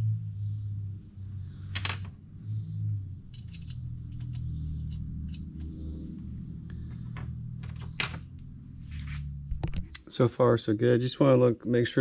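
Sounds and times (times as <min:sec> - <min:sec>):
steady low hum: 0:00.0 - 0:10.8
metal washers and nuts clinking: 0:01.6 - 0:02.1, 0:03.2 - 0:05.8, 0:06.9 - 0:08.3.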